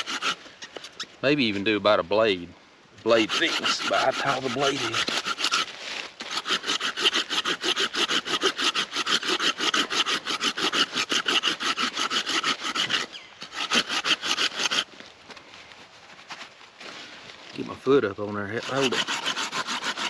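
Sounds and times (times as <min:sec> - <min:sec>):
hand saw cutting wood: 0:00.0 - 0:01.0, 0:03.1 - 0:14.9, 0:18.4 - 0:20.0.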